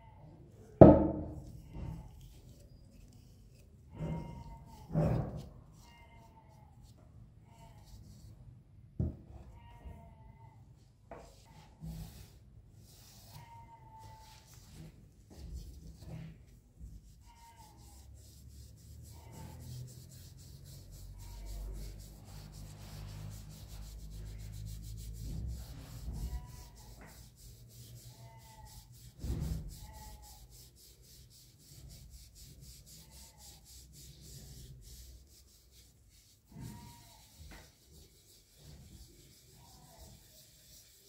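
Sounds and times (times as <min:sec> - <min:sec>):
polishing pad rubbing metal: 0:11.4 - 0:41.0.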